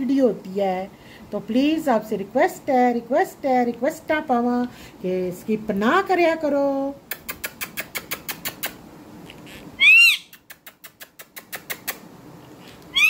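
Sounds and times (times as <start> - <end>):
parakeet screech: 9.5 - 10.3.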